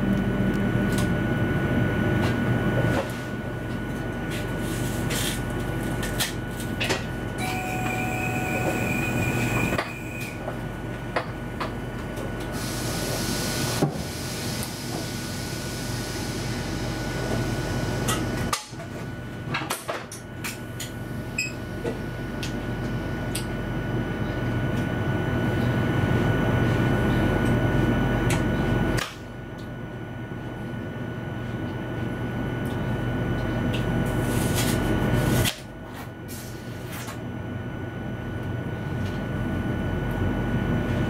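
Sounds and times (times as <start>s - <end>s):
electrical hum: 0.0s - 19.5s, 20.1s - 41.0s
high steady tone: 7.4s - 10.2s
thin high whine: 7.4s - 10.4s.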